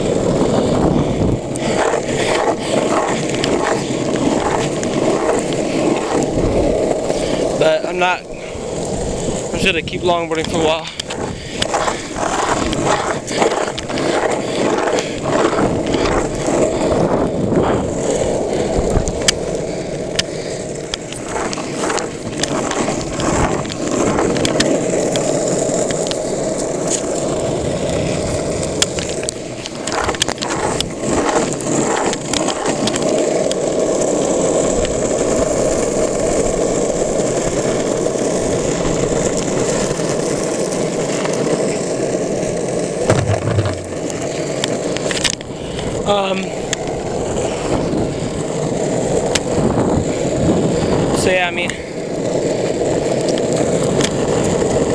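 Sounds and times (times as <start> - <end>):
longboard wheels rolling on asphalt: 0.0 - 54.9
sharp clicks and knocks: 43.1 - 45.4.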